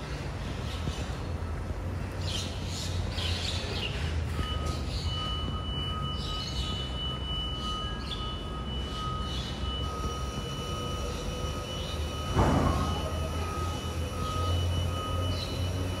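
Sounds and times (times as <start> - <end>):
electric truck humming: 4.2 - 16.0
high two-pitch whine: 4.3 - 16.0.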